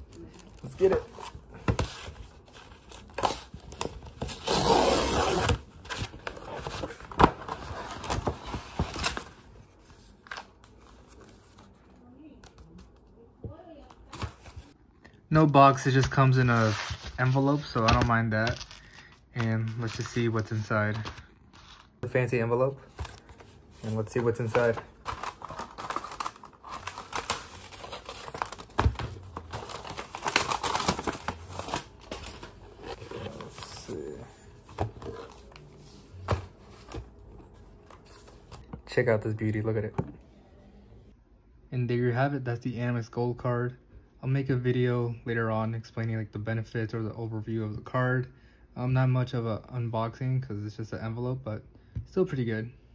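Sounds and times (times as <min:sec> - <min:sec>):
paper crinkling and tearing: 0:22.9 - 0:34.2.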